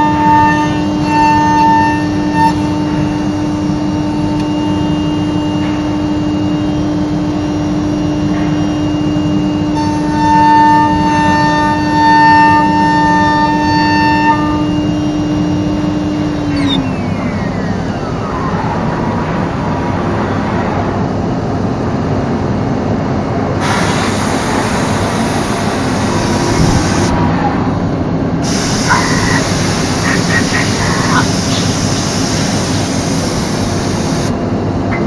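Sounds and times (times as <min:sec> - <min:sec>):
router spindle whining: 0:00.0 - 0:07.2, 0:09.5 - 0:19.7, 0:24.2 - 0:34.4
rushing machine noise: 0:00.0 - 0:35.0
loud hiss: 0:23.6 - 0:27.1, 0:28.4 - 0:34.3.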